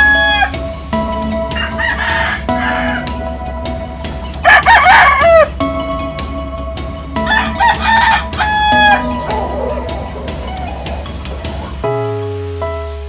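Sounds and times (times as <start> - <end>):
rooster crowing: 0.0 - 0.6, 4.4 - 5.5, 7.3 - 11.0.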